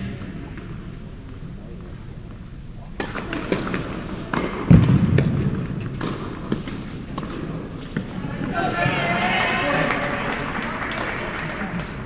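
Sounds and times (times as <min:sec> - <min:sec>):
tennis balls bouncing and hit: 0:03.0 - 0:09.1.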